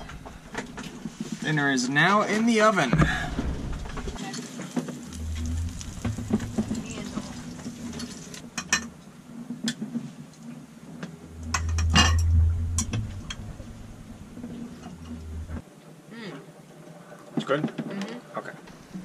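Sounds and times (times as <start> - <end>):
steady low rumble: 3.0 - 4.2, 4.9 - 8.9, 11.0 - 15.6.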